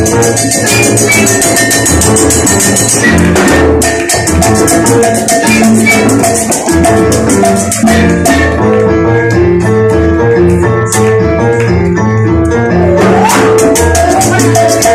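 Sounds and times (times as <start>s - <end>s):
fast shaker rhythm: 0.0s - 8.7s, 12.6s - 14.9s
bass: 0.0s - 14.9s
congas: 0.0s - 14.9s
flute melody: 0.6s - 1.8s, 3.0s - 3.8s, 5.4s - 6.5s, 12.7s - 14.9s.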